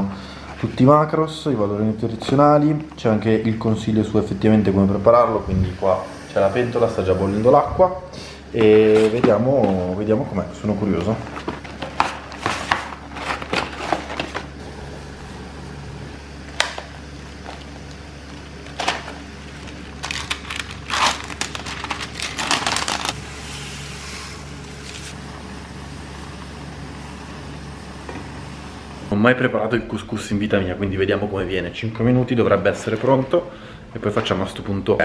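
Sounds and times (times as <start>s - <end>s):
steady low hum: 0.0s - 35.0s
plastic packaging crinkling: 11.1s - 14.6s, 17.2s - 23.2s.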